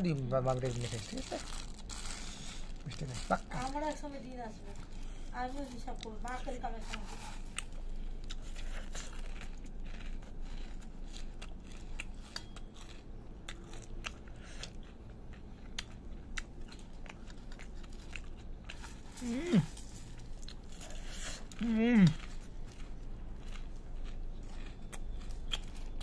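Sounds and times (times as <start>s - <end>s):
puffed rice crackling: 0.0s - 13.0s.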